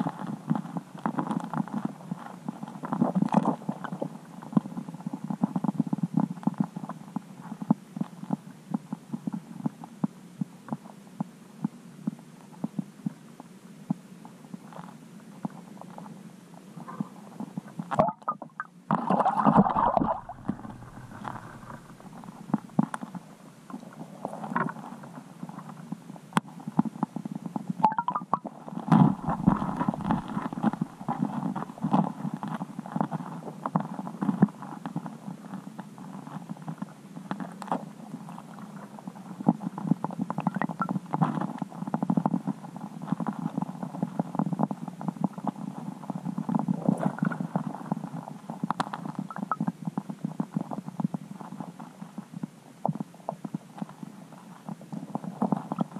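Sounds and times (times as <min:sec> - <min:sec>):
underwater rumble and gurgling: 0:16.8 - 0:25.6, 0:27.1 - 0:35.3.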